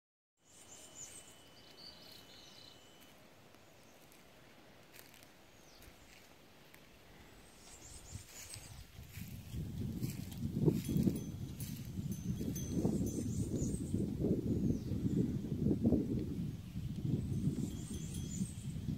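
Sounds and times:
bird chirps: 0:00.4 - 0:04.1
soft footsteps: 0:01.0 - 0:12.6
thin steady high insect tone: 0:17.0 - 0:18.9.

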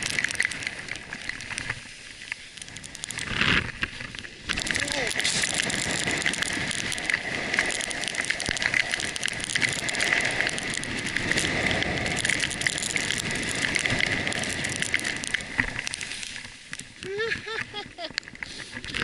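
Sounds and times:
skis sliding over snow: 0:00.0 - 0:19.0.

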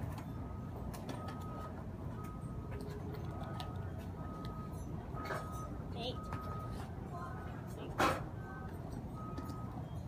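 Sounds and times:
repeating single-pitched beep: 0:03.7 - 0:06.8, 0:08.4 - 0:10.0.

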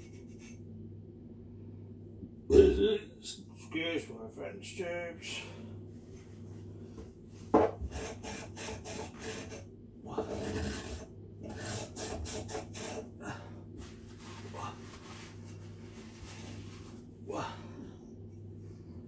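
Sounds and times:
paper towel wiping metal bowl: 0:13.8 - 0:17.1.

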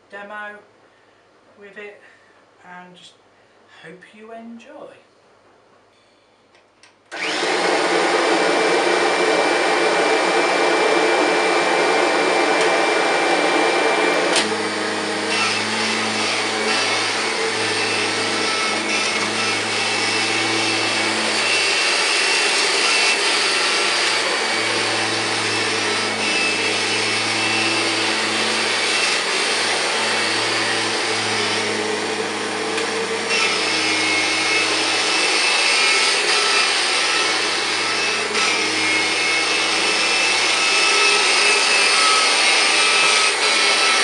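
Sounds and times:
vacuum cleaner running: 0:07.1 - 0:44.0
vacuum cleaner click: 0:12.4 - 0:12.9, 0:14.2 - 0:14.9, 0:32.7 - 0:33.0.

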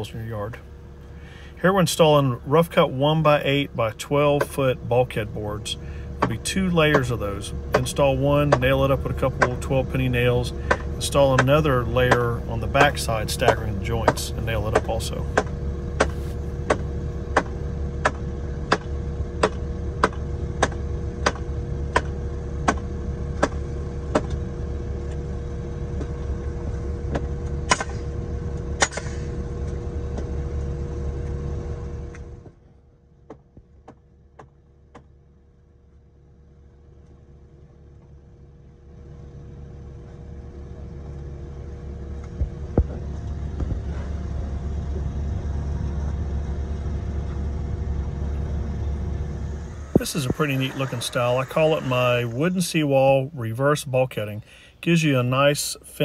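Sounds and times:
pump engine running: 0:00.0 - 0:56.0
hammer blows on wood: 0:10.5 - 0:22.1.

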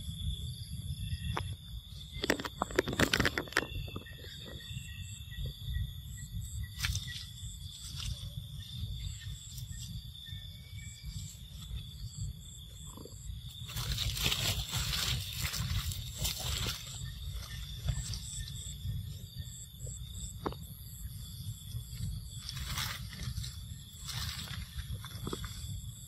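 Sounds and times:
high-pitched insect drone: 0:00.0 - 0:26.0
wind rumble on microphone: 0:00.0 - 0:26.0
leaves and branches rustling: 0:06.6 - 0:12.2, 0:13.0 - 0:19.4, 0:21.9 - 0:26.0.

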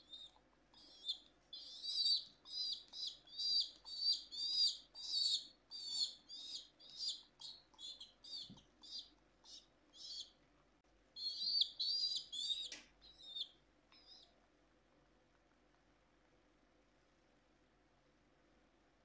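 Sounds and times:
baby pigeon peeping: 0:00.0 - 0:10.4, 0:11.1 - 0:14.5.

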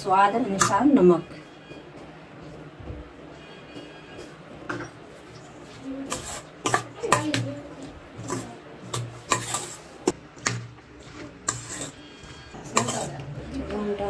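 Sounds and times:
spoon scraping metal bowl: 0:03.6 - 0:07.4, 0:08.2 - 0:10.2, 0:11.0 - 0:13.8.

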